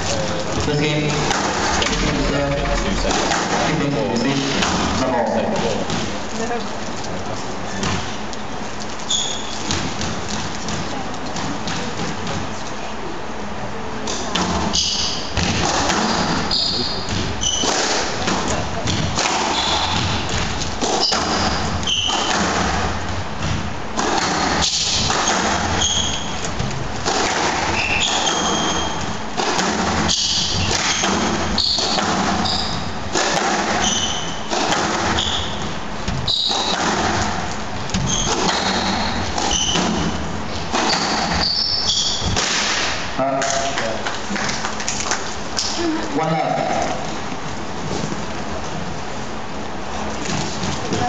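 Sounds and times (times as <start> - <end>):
squash ball striking racket and walls: 0.0 - 6.3, 9.2 - 12.6, 14.1 - 43.6
court shoes squeaking: 7.7 - 12.6, 14.1 - 42.6.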